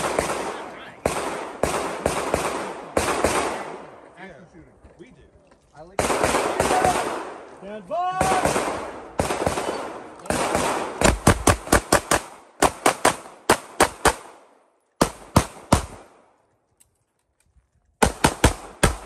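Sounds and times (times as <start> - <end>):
pistol shots: 0.0 - 3.9, 6.0 - 7.5, 8.2 - 16.2, 18.0 - 19.0.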